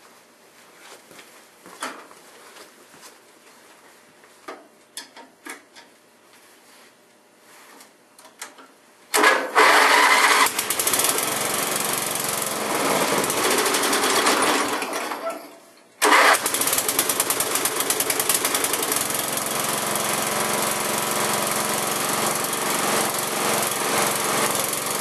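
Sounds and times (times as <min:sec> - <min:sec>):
tools clicking and tapping: 0:04.5 - 0:06.0
lawn mower engine running rough: 0:09.2 - 0:15.3, 0:16.0 - 0:25.0.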